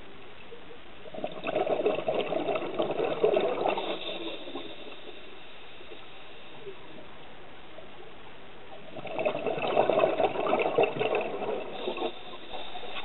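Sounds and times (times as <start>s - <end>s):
bubbling and crackling: 0.0s - 13.0s
underwater bubbles hissing: 1.0s - 7.2s, 8.7s - 13.0s.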